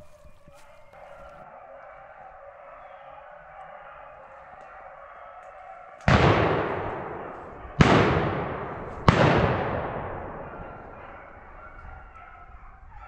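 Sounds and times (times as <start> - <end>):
shotgun shots with echo: 6.0 - 11.4.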